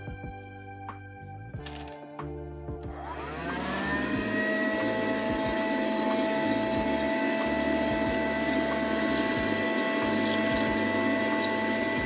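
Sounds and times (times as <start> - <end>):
handheld vacuum cleaner whine: 2.9 - 12.0.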